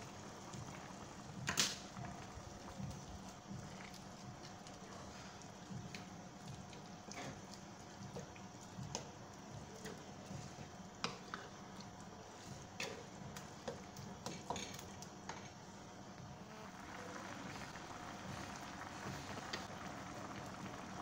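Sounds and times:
spatula stirring meat in pot: 3.2s - 15.5s.

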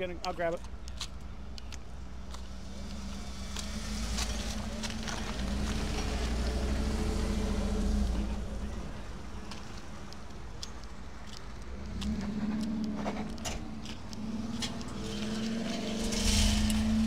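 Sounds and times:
light clicks and scuffs: 0.2s - 6.4s, 9.4s - 16.9s
car engine idling and revving: 0.7s - 10.2s, 11.6s - 17.0s.

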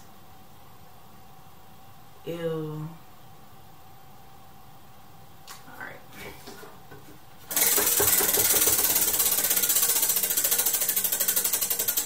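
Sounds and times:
prize wheel pointer clicking: 7.5s - 12.0s.

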